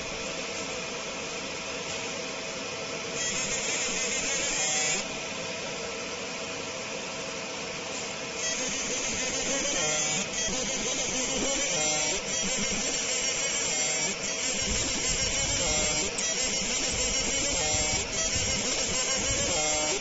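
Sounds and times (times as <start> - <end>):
laser machine running: 2.9 - 5.5, 7.9 - 20.0
laser firing high hiss: 8.4 - 20.0.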